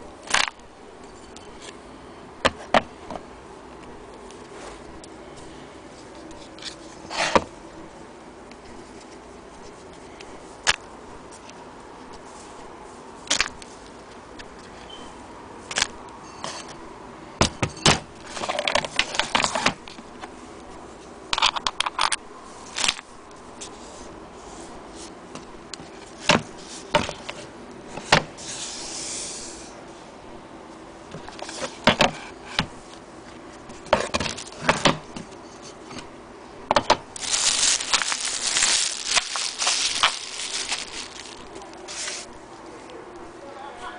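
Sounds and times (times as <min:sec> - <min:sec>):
plastic bag crinkling: 0:37.1 - 0:42.3.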